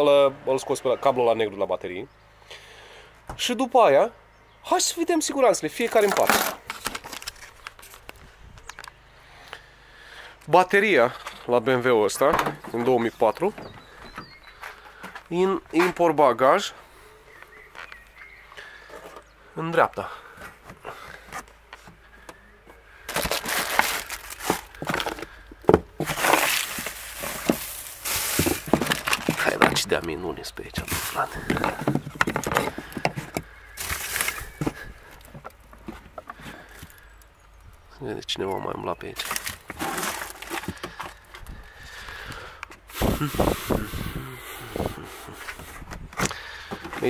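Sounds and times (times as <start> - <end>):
plastic bags rustling: 5.8 - 8.2, 23.0 - 37.2, 39.1 - 42.3
plastic packaging crinkling: 5.9 - 8.9, 23.1 - 25.4, 26.0 - 30.0, 30.8 - 35.4, 39.2 - 41.3
objects knocking: 24.4 - 29.9, 30.9 - 36.4.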